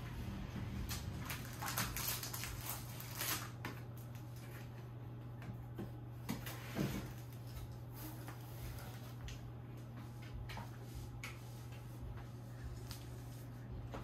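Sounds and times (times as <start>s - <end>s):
steady low hum: 0.0s - 14.0s
paper sheets rustling: 0.9s - 4.7s.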